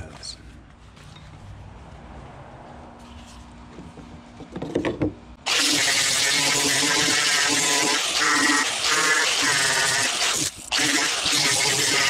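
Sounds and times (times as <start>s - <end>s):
angle grinder running: 5.5s - 12.0s.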